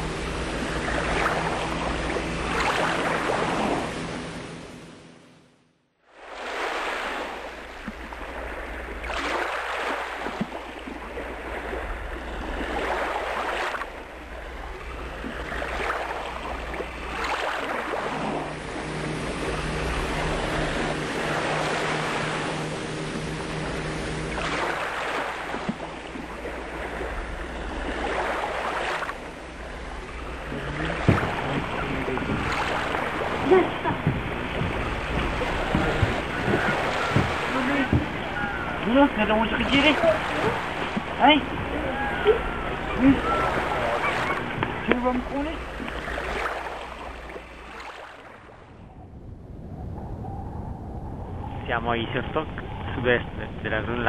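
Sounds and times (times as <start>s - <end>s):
low engine-like hum: 0.0s - 5.8s, 7.4s - 54.0s
small waves lapping at shore: 0.0s - 49.8s
low wind rumble: 0.0s - 54.0s
sharp knocks: 30.5s - 33.1s, 33.9s - 38.8s.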